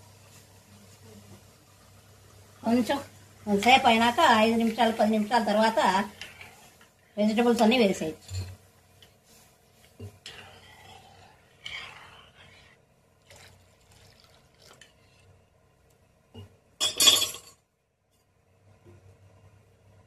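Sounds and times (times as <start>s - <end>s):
water pouring and splashing: 13.2s - 15.2s.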